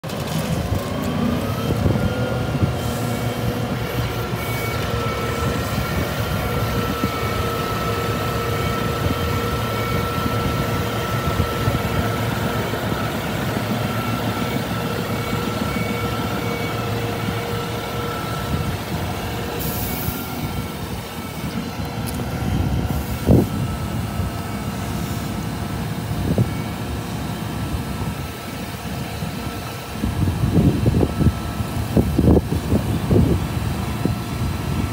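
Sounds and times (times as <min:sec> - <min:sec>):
hydraulic whine: 0:00.0 - 0:34.9
truck engine running: 0:00.0 - 0:34.9.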